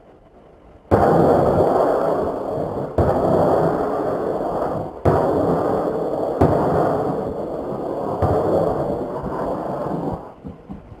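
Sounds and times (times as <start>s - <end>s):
low rumble of rocket impacts: 0.0s - 11.0s
dull thumps: 8.1s - 11.0s.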